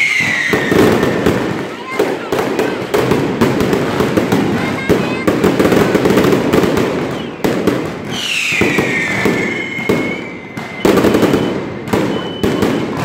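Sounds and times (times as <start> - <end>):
falling whistle: 0.0 - 1.2, 8.1 - 12.9
firecrackers crackling: 0.0 - 13.0.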